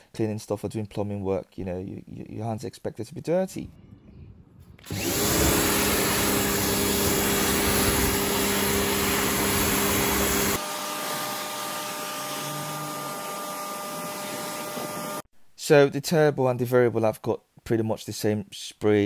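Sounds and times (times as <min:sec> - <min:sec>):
pressure washer motor humming: 0:04.8 - 0:15.2.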